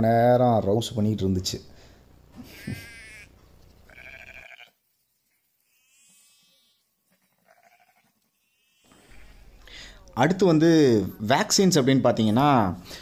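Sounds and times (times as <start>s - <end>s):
sheep bleating: 2.4s - 4.8s, 5.4s - 9.7s.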